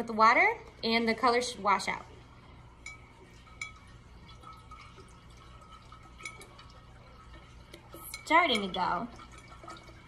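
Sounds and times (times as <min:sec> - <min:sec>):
water sloshing in a jar: 0:00.0 - 0:10.0.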